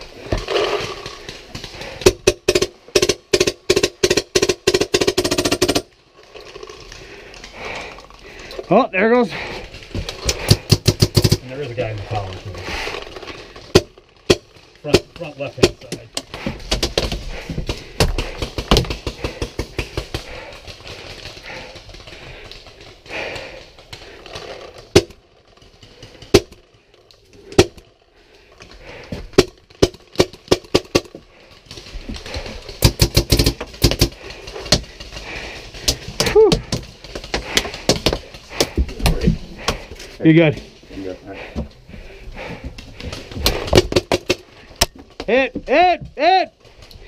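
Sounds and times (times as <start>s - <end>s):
paintball markers firing: 0.3s - 5.9s, 10.2s - 12.3s, 13.6s - 26.8s, 27.4s - 27.9s, 29.0s - 31.2s, 32.6s - 39.8s.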